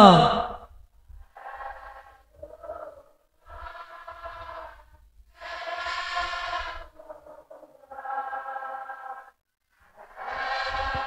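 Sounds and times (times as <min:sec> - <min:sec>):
lead voice singing: 0:00.0 - 0:00.6.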